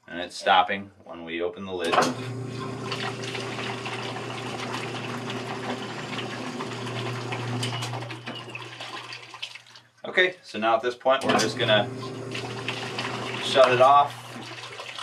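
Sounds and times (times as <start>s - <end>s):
washing machine motor hum: 1.9s - 9.0s, 11.2s - 15.0s
water rushing out: 11.6s - 15.0s.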